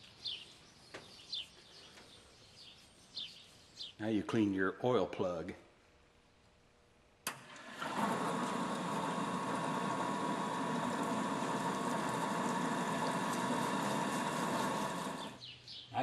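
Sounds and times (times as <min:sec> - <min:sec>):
small motor-driven machine running: 0:07.5 - 0:15.4.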